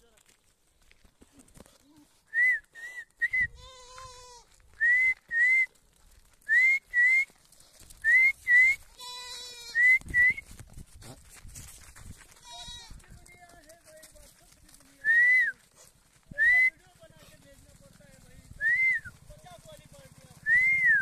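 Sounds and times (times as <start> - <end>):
goat bleating: 3.5 - 4.5, 8.9 - 9.9, 12.4 - 13.2.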